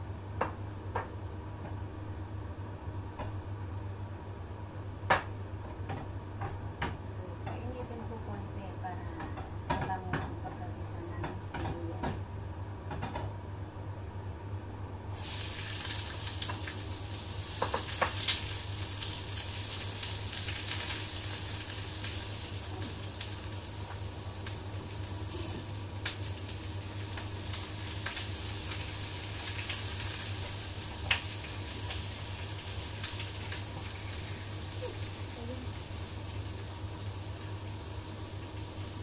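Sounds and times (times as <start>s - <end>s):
food sizzling in oil: 15.1s - 39.0s.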